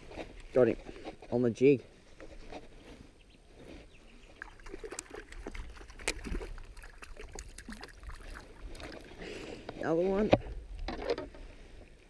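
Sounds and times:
fish splashing at water surface: 4.4 - 9.2.

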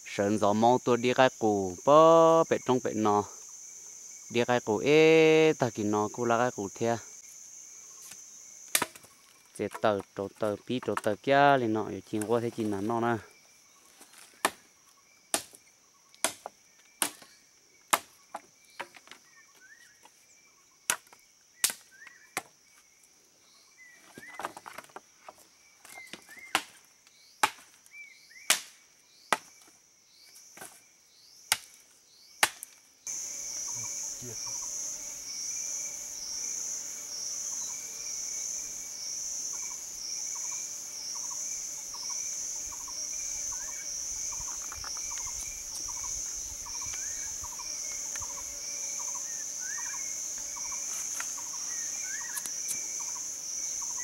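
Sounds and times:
high-pitched insect drone: 0.2 - 9.5, 33.1 - 54.0
machete chopping wood: 8.1 - 9.1, 14.4 - 14.7, 15.3 - 15.6, 16.2 - 17.3, 17.9 - 18.2, 20.9 - 22.5, 26.4 - 26.8, 27.4 - 27.8, 28.5 - 29.6, 31.5 - 31.7, 32.4 - 32.7.

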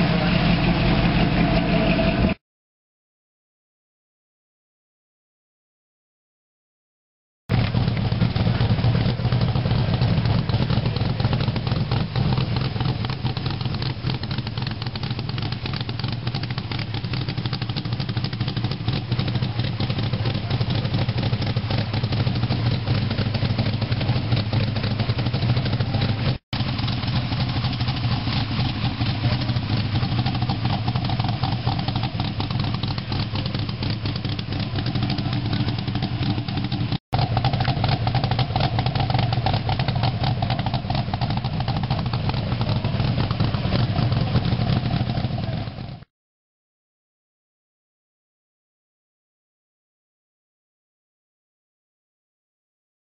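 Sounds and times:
car engine idling: 0.0 - 2.4, 7.5 - 46.0.

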